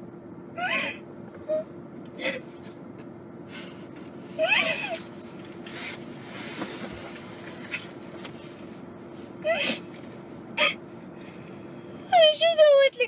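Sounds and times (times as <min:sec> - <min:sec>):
woman crying and sobbing: 0:04.4 - 0:05.0, 0:09.4 - 0:09.8.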